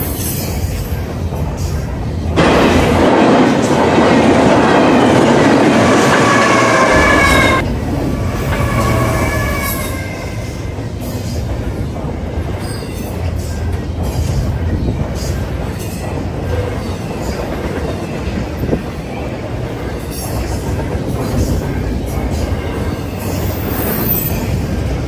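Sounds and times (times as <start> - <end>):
train wheels rumbling on rails: 0.0 - 25.0
wheel squeal: 23.0 - 24.6.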